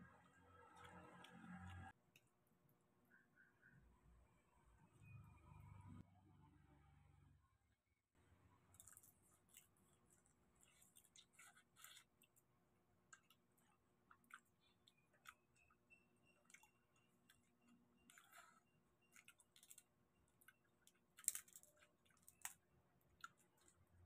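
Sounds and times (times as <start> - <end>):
prawn shells crackling being peeled: 8.7 - 24.0
soft chewing clicks and smacks: 8.8 - 24.0.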